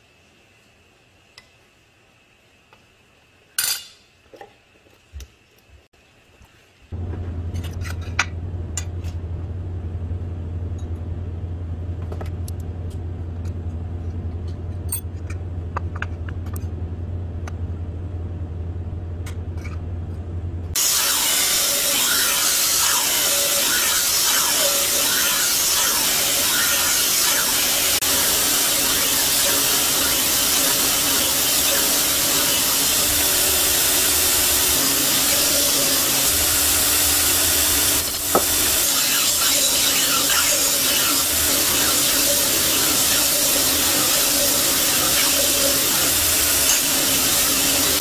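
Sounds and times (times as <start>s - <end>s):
low motor hum: 6.9s - 22.0s
belt grinder grinding steel: 20.8s - 48.0s.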